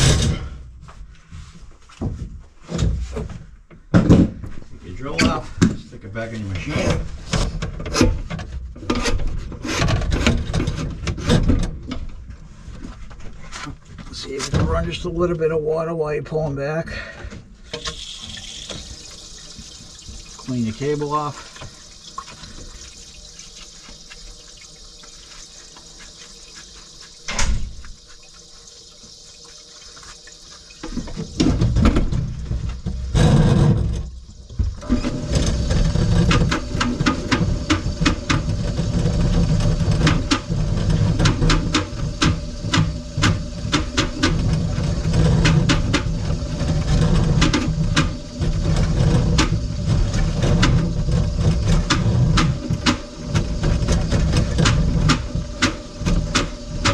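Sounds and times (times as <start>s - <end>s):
faint running water: 17.6s - 56.9s
drain cleaning machine running: 17.7s - 56.9s.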